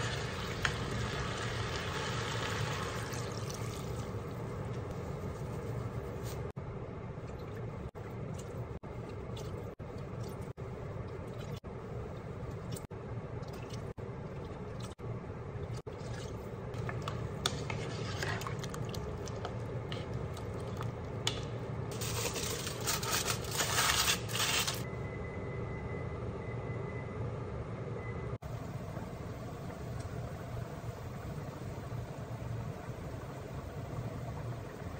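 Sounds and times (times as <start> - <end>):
aluminium foil crinkling: 21.9 - 24.9.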